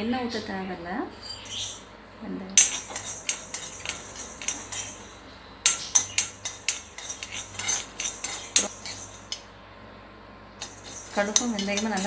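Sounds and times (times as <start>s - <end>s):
metal spoon scraping iron pan: 1.3s - 1.8s, 2.6s - 9.5s, 10.6s - 12.0s
seeds roasting: 2.6s - 9.5s, 10.6s - 12.0s.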